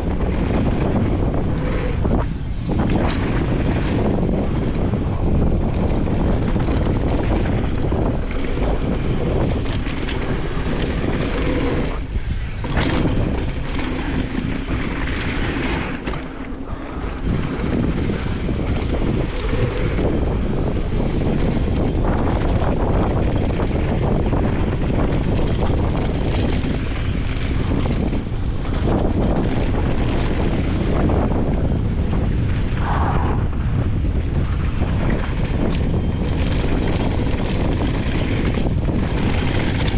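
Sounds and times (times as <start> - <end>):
tyres rolling on dirt: 0.0 - 31.8
bike rattling and clicking: 0.0 - 39.9
wind on microphone: 0.0 - 39.9.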